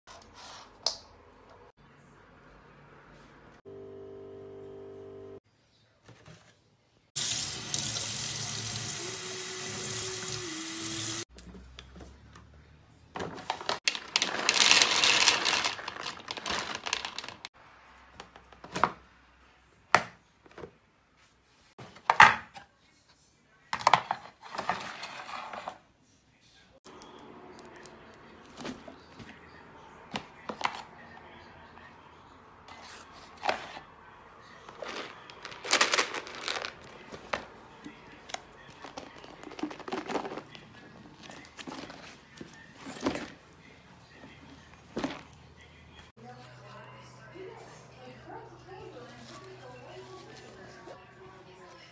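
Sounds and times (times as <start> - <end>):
water running: 7.2 - 11.3
fabric bag rustling: 13.8 - 17.5, 34.8 - 37.3
dry kibble pouring into plastic box: 13.9 - 17.5, 34.8 - 36.9.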